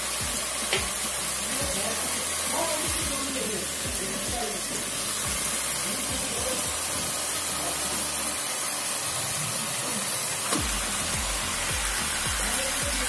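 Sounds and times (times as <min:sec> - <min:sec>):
low thumping beat: 0:00.0 - 0:02.0, 0:02.9 - 0:07.3, 0:10.6 - 0:13.0
masala sizzling in a pan: 0:00.0 - 0:13.0.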